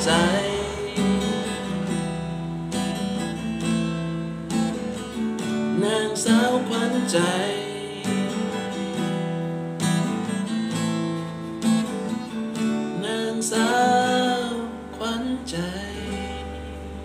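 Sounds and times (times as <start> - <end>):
person singing: 0.0 - 2.2, 5.7 - 9.2, 12.9 - 17.0
acoustic guitar strummed: 0.0 - 17.0.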